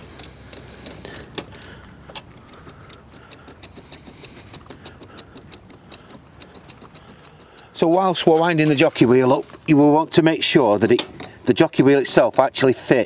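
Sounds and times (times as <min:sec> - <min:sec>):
jockey wheel handle clicking: 0:00.0 - 0:08.8, 0:10.8 - 0:12.5
light ticks of winding wheel: 0:00.0 - 0:08.8.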